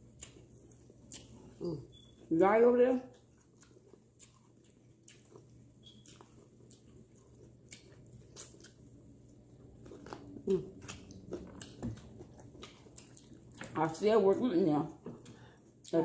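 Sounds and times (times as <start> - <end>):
biting and chewing: 2.8 - 14.0.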